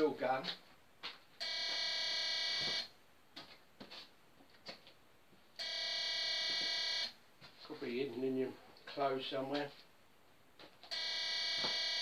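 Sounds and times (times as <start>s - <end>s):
electronic alarm buzzer: 1.4s - 2.9s, 5.6s - 7.2s, 10.9s - 12.0s.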